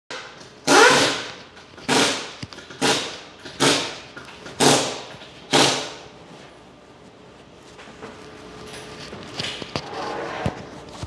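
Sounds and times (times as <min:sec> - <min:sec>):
pneumatic impact wrench bursts: 0:00.2 - 0:06.1.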